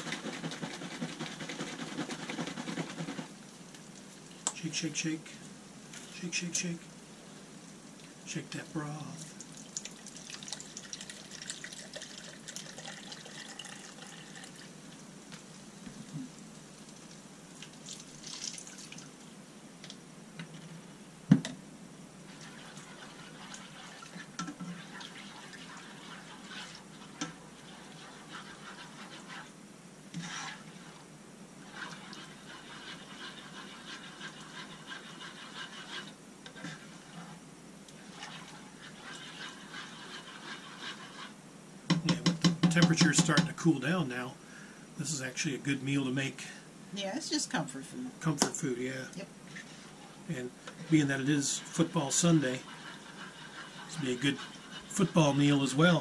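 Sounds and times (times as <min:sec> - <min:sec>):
spoon stirring and scraping skillet: 0:00.0 - 0:14.7, 0:22.2 - 0:43.9, 0:48.3 - 0:56.0
broth pouring into jug: 0:09.0 - 0:14.9, 0:16.1 - 0:19.2.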